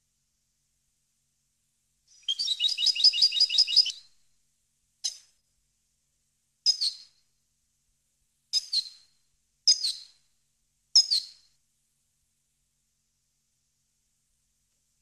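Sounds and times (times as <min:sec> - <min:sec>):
goldfinch twittering: 0:02.2 - 0:03.9.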